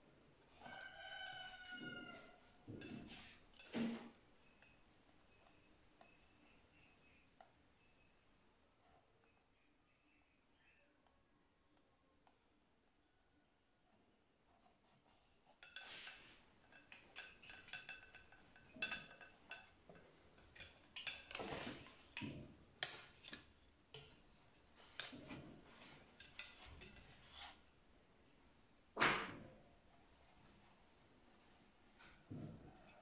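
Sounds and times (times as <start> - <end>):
wooden loom sword tapping and scraping: 0.4 - 7.6, 14.5 - 27.8.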